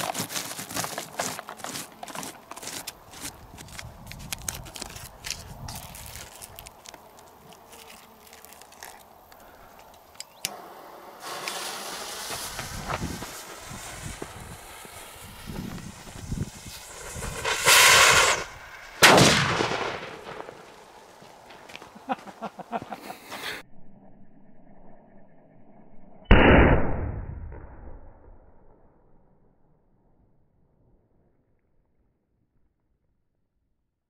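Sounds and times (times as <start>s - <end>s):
firecracker fuse hissing: 10.3s - 21.2s
firecracker bang echoing: 10.5s - 20.8s.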